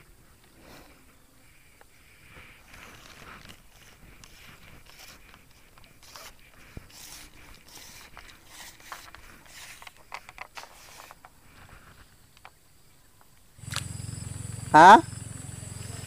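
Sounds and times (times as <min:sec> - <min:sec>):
fishing line rustling and scraping: 0:00.0 - 0:12.6.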